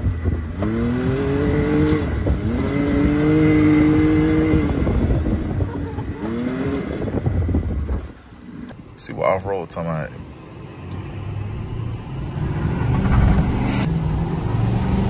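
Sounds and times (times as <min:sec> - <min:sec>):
engine revving under throttle: 0:00.0 - 0:07.8, 0:10.9 - 0:15.0.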